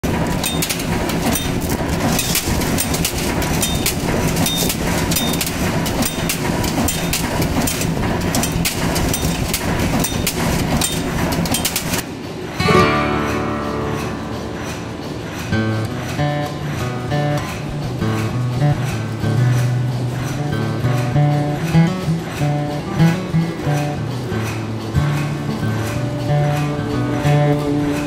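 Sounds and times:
machine clattering metal knocks: 0:00.0 - 0:28.0
machine hum: 0:00.0 - 0:28.0
strummed guitar music: 0:12.5 - 0:28.0.

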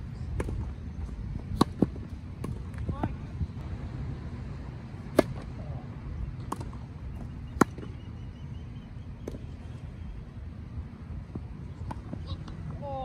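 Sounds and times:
racket hitting tennis ball: 0:01.5 - 0:02.8, 0:05.1 - 0:05.5.

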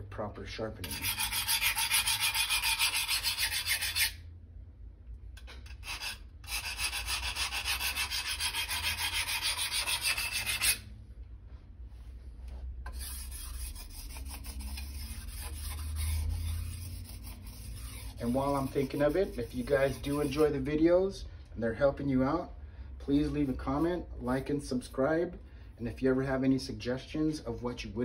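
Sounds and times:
file rasping on steel edge: 0:00.8 - 0:04.2, 0:05.4 - 0:10.8, 0:12.9 - 0:20.6.

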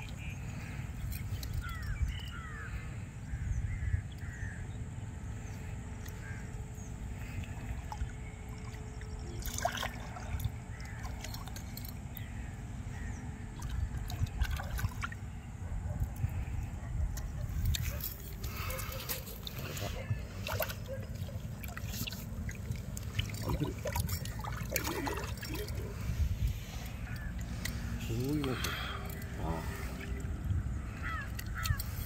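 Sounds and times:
birds calling: 0:00.0 - 0:32.0
fish splashing at surface: 0:18.4 - 0:26.1
sharp splash: 0:21.6 - 0:25.8.

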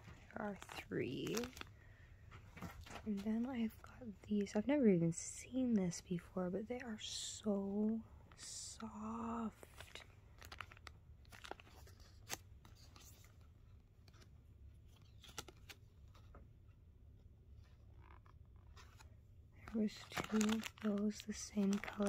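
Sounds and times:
cardboard label rustling and clicking: 0:00.0 - 0:01.7, 0:17.6 - 0:22.0
low room hum: 0:00.0 - 0:22.0.

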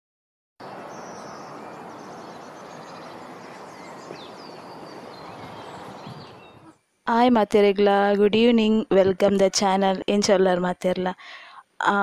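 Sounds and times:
birds chirping: 0:00.6 - 0:06.9
steady background hiss: 0:00.6 - 0:12.0.

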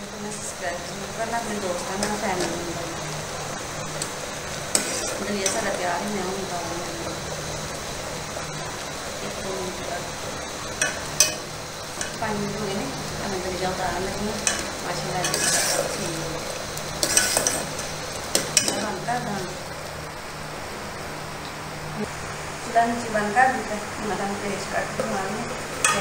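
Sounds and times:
ladle stirring porridge in pot: 0:03.9 - 0:05.8, 0:10.3 - 0:12.2, 0:14.3 - 0:18.9
ladle scraping and clinking on pot: 0:04.7 - 0:05.7, 0:10.8 - 0:12.2, 0:14.4 - 0:16.0, 0:17.0 - 0:18.9.

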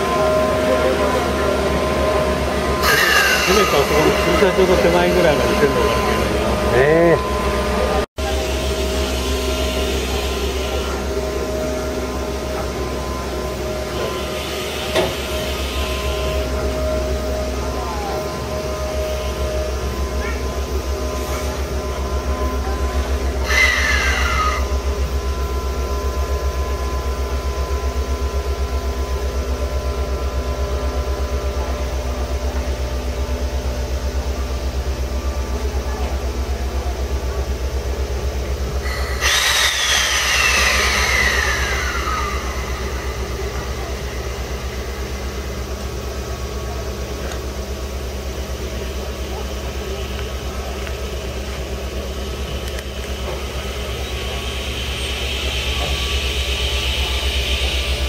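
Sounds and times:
low pulsing compressor drone: 0:24.6 - 0:58.0
loud hiss of released air: 0:38.8 - 0:46.6, 0:53.1 - 0:58.0.

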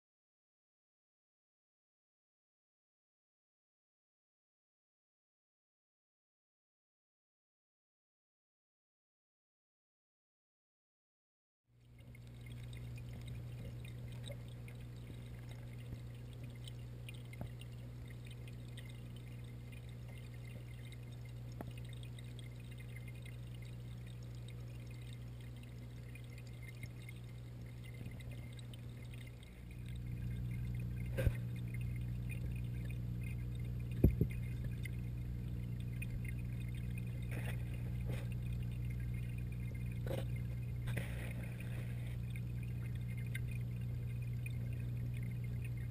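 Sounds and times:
pump hum: 0:11.8 - 0:45.9
water pouring and trickling: 0:11.8 - 0:45.9.

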